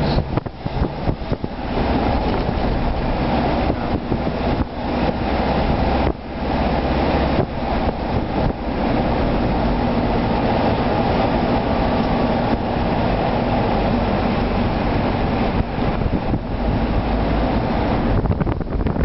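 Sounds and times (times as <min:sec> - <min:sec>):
bus engine and road noise: 0:00.0 - 0:19.0.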